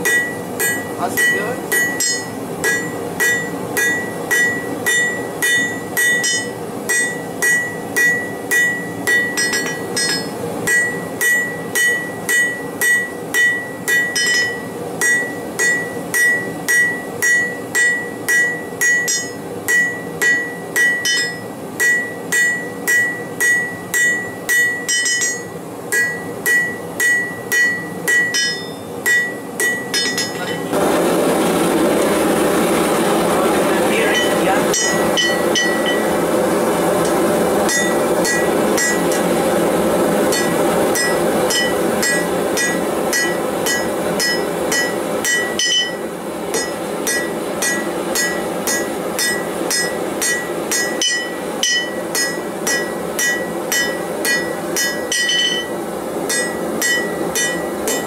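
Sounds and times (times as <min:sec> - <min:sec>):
hammer striking steel on anvil: 0:00.0 - 0:30.8, 0:34.0 - 0:36.3, 0:37.0 - 0:39.5, 0:40.1 - 0:58.0
steady rushing noise: 0:27.5 - 0:48.6.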